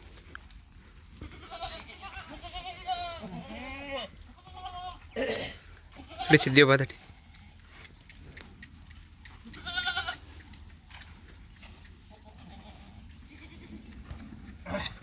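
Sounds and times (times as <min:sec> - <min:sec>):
goat bleating: 0:01.2 - 0:07.3, 0:09.4 - 0:10.4, 0:12.0 - 0:13.9.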